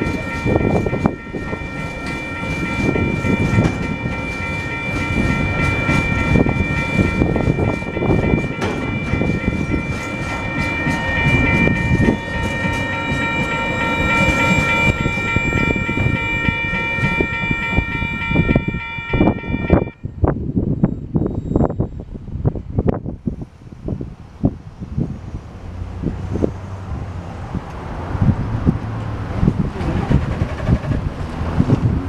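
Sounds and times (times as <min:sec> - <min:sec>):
train wheels rumbling and clicking: 0:00.0 - 0:20.0, 0:27.4 - 0:32.0
high-pitched ringing: 0:00.0 - 0:22.1.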